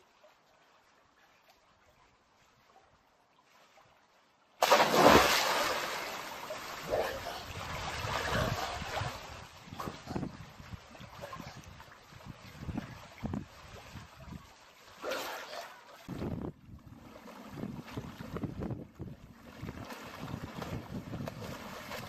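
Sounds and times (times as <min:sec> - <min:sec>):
water sloshing and splashing: 0:00.0 - 0:22.0
loud splash into pool: 0:04.6 - 0:06.8.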